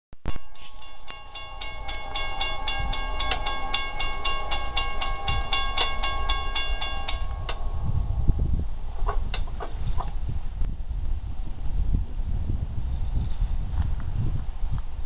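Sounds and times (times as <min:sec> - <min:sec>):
railroad crossing bell ringing: 0:00.3 - 0:09.6.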